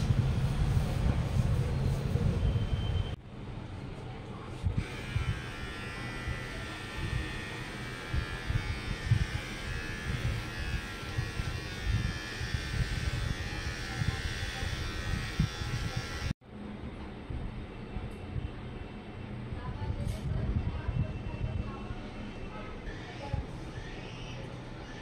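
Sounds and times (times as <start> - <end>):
electric hair trimmer buzzing: 4.8 - 16.4.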